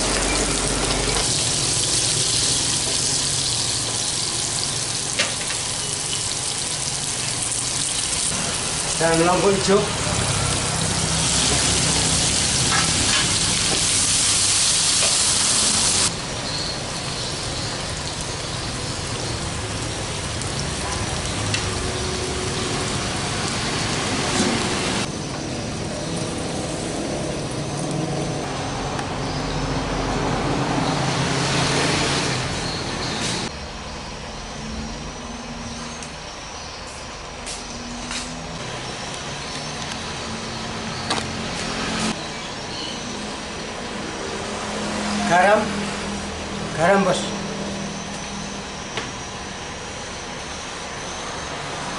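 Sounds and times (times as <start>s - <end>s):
vegetables sizzling in hot oil: 0.0s - 27.5s.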